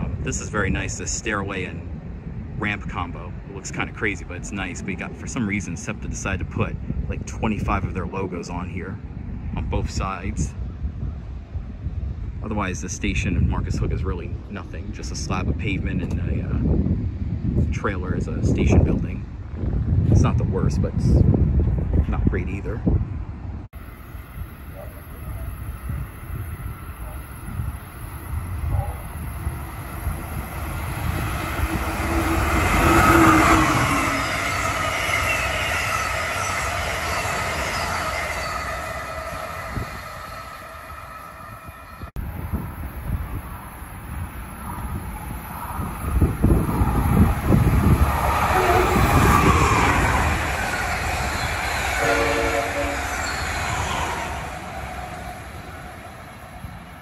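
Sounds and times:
electric locomotive passing: 23.2s - 57.0s
train cars rolling past: 23.7s - 57.0s
wheels ringing on rails: 23.8s - 57.0s
train horn: 31.8s - 42.0s, 48.5s - 49.7s, 51.9s - 53.4s.

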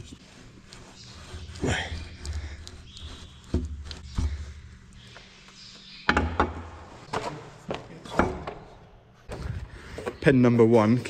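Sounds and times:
metal knocks and clunks: 6.0s - 7.4s, 8.0s - 8.8s.

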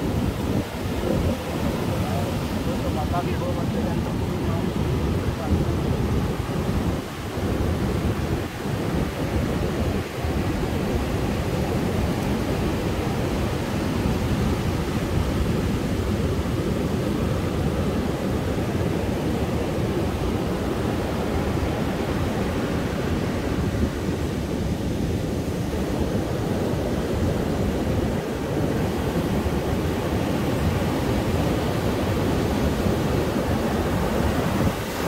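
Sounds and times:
surf waves roaring: 0.0s - 35.0s
wind on microphone: 0.0s - 35.0s.

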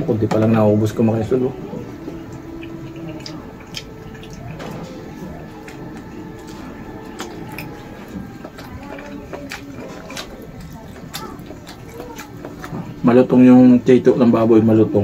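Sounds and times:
low steady hum: 0.0s - 15.0s
person chewing food: 1.7s - 13.4s.

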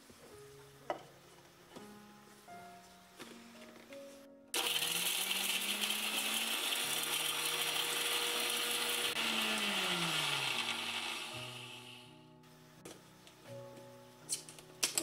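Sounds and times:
mixer grinder grinding spices: 4.6s - 12.1s.

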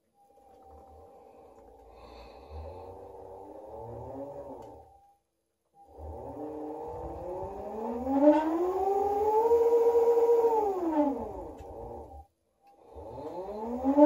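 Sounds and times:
electric motor whine: 2.4s - 4.8s, 5.9s - 12.2s, 12.9s - 14.0s.

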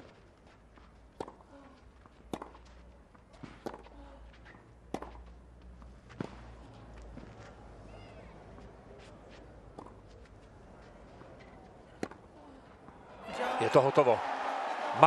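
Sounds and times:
hushed stadium crowd: 10.6s - 15.0s.

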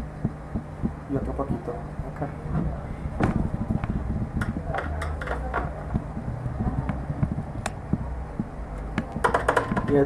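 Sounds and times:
low steady rumble: 0.0s - 10.0s.

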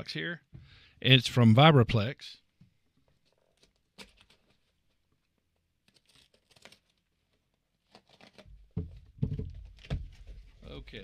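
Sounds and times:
box bumping: 8.8s - 10.5s.

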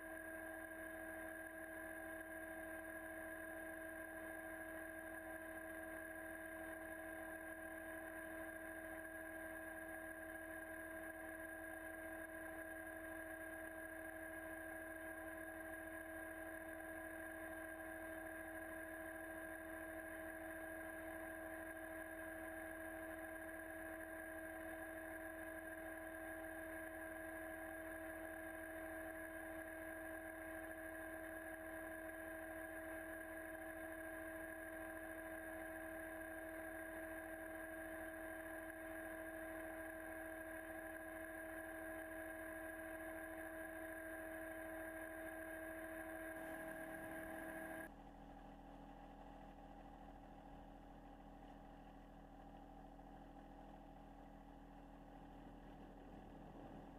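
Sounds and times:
steady hum: 44.5s - 48.0s, 51.0s - 56.9s.

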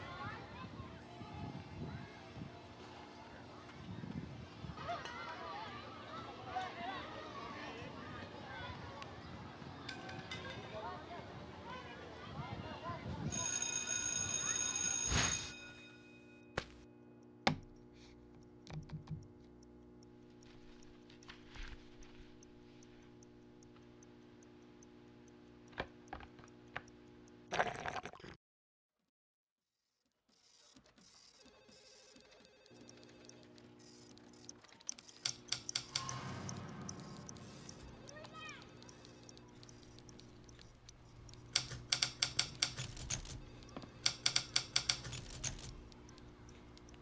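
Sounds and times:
low steady hum: 15.5s - 27.5s, 32.8s - 42.0s, 45.1s - 47.0s
sharp clicks: 17.2s - 27.4s, 32.2s - 47.0s
clock ticking: 17.2s - 27.5s, 31.4s - 47.0s
typewriter key strikes: 34.9s - 38.1s, 41.4s - 45.9s.

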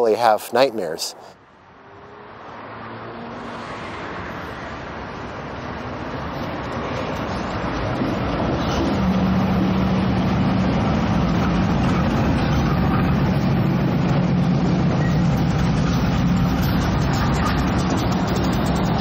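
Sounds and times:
engine humming: 4.7s - 19.0s.

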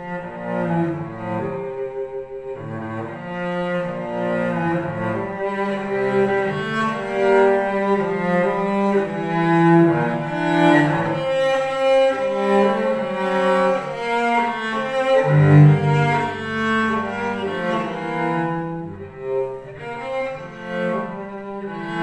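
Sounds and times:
bowed cello melody: 0.0s - 22.0s.

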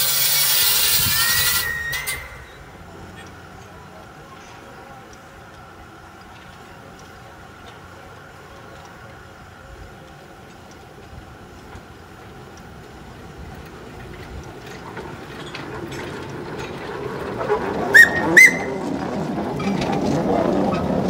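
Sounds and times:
steam whistle toots: 0.0s - 2.6s, 17.9s - 18.8s
train rumble and clatter: 0.0s - 21.0s.

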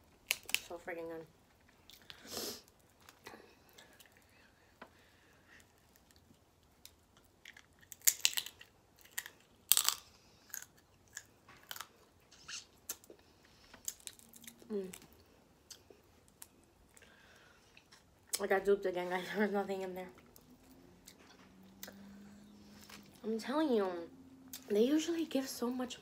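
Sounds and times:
crab shell cracking and crunching: 0.2s - 0.7s, 5.7s - 13.1s, 13.8s - 15.1s.

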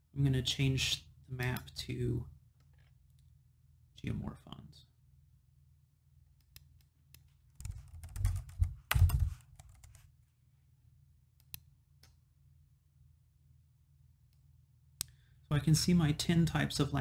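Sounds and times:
typing on computer keyboard: 7.5s - 10.0s.

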